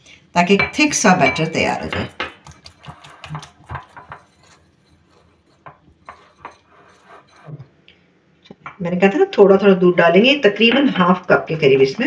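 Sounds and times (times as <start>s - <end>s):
whisk clinking against bowl: 0.5s - 7.5s.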